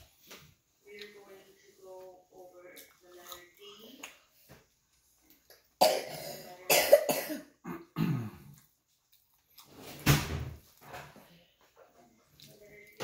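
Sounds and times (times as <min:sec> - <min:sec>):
person coughing: 0:05.8 - 0:08.5.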